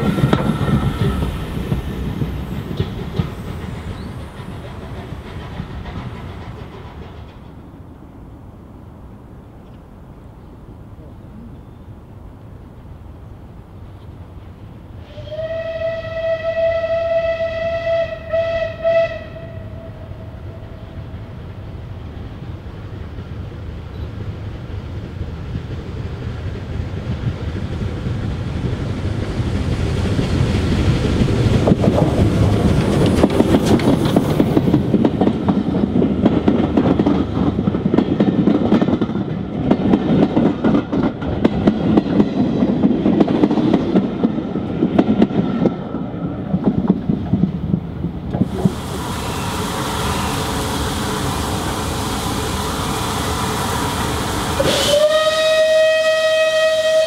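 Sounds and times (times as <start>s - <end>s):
steam locomotive whistle: 0.0s - 1.7s, 15.0s - 21.0s, 48.5s - 51.6s, 52.2s - 57.0s
wheels clattering over rail joints: 0.0s - 7.8s
steam train passing: 0.0s - 57.0s.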